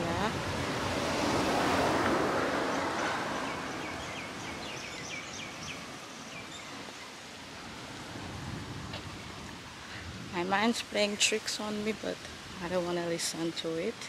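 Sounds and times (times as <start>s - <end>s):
broad rushing noise: 0.0s - 11.6s
bird chirping: 2.7s - 7.2s.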